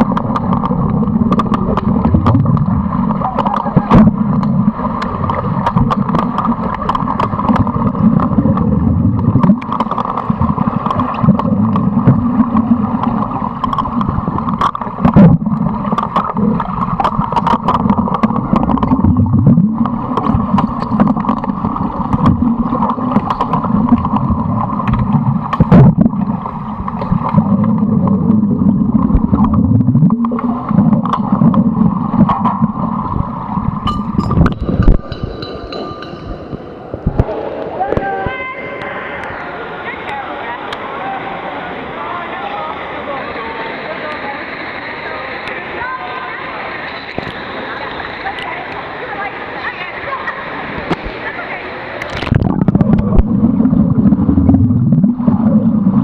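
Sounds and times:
underwater churning rumble: 0.0s - 35.4s, 45.8s - 56.0s
sharp underwater clicks and knocks: 0.0s - 37.3s, 50.8s - 51.2s, 52.0s - 53.4s.

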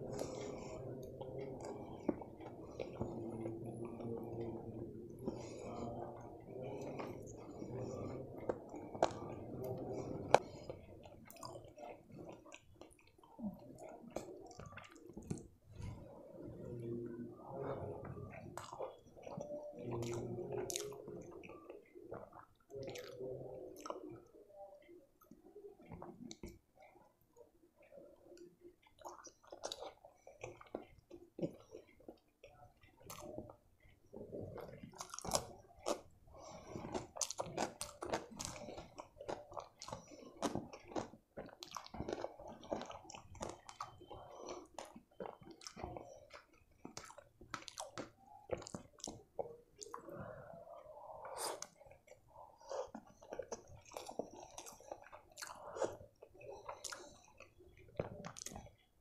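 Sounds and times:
person chewing: 0.0s - 27.2s, 27.8s - 59.0s
wet mouth clicks: 27.8s - 58.9s.

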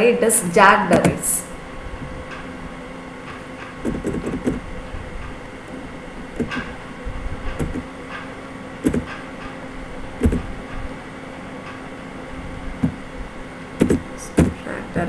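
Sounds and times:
steady low hum: 0.0s - 15.0s
soft knocks and clicks: 7.5s - 9.6s.

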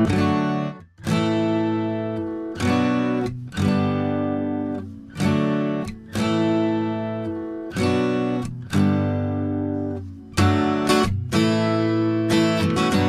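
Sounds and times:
acoustic guitar strumming chords: 0.0s - 13.0s.

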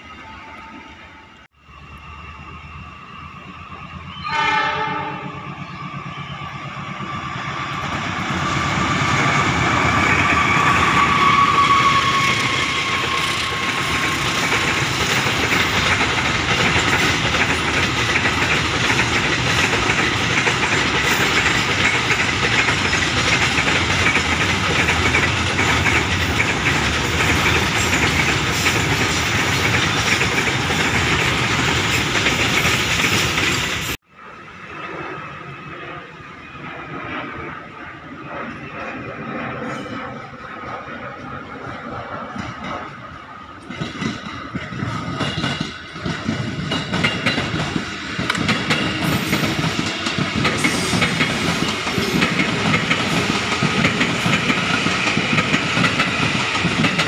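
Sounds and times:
freight train rumbling past: 0.0s - 57.0s
train horn blast: 4.1s - 5.6s.

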